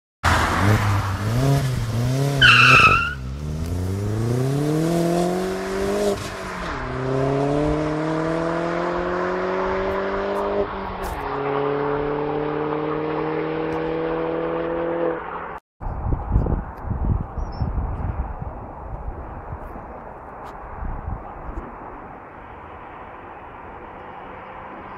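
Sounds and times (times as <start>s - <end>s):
car engine revving: 0.2s - 15.5s
car accelerating through gears: 0.3s - 15.5s
tyre squeal: 2.4s - 3.2s.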